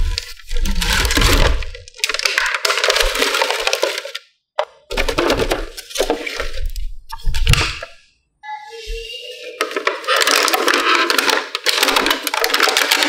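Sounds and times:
cardboard and plastic packaging crackling: 0:00.0 - 0:04.3, 0:09.6 - 0:13.0.

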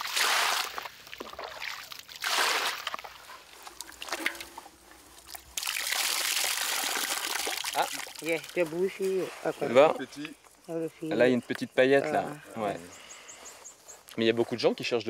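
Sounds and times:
water sloshing in a pan: 0:00.0 - 0:08.7.

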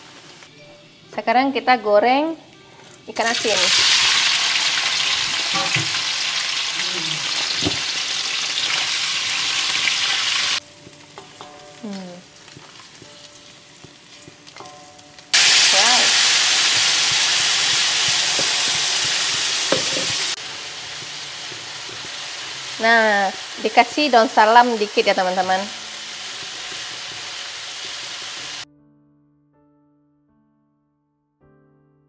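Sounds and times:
fish sizzling in hot oil: 0:03.2 - 0:28.6.

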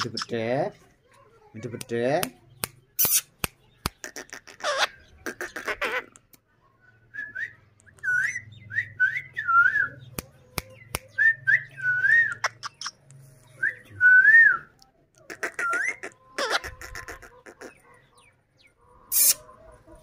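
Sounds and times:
sharp clicks: 0:01.7 - 0:04.1.

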